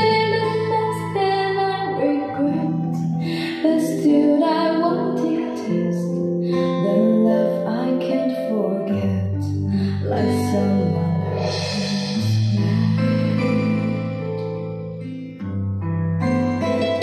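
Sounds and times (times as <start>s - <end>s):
song with plucked guitar over loudspeakers: 0.0s - 17.0s
deep bass note: 10.0s - 15.0s.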